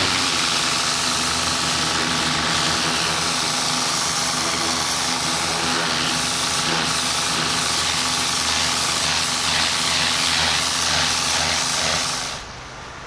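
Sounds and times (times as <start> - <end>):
pressure washer spray hissing: 0.0 - 12.5
pressure washer machine hum: 0.0 - 12.7.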